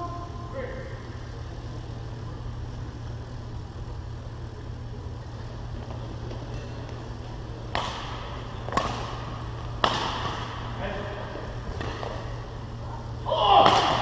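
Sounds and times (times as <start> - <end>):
sports hall hum: 0.0 - 14.0
racket striking shuttlecock: 7.7 - 10.6.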